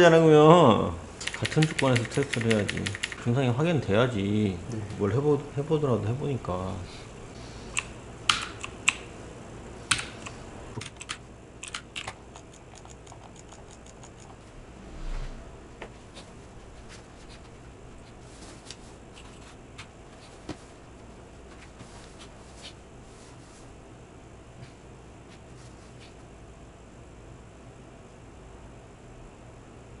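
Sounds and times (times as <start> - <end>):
steady low hum: 0.0 - 30.0
computer mouse clicks: 1.2 - 3.2, 7.7 - 9.0, 9.9 - 14.4.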